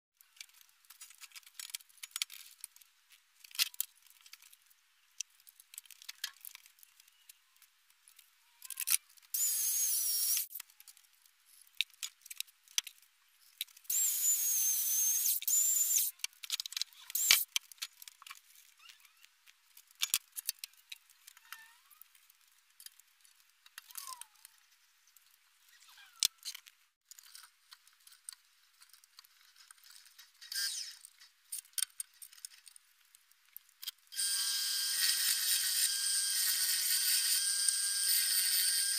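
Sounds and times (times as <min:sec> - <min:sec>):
electric chainsaw cutting log: 0:09.4 - 0:10.5, 0:13.9 - 0:16.1, 0:34.2 - 0:38.9.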